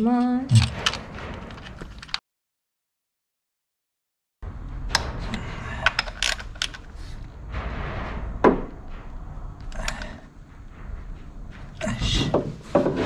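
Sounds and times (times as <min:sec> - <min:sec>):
low steady rumble: 0:04.4 - 0:13.0.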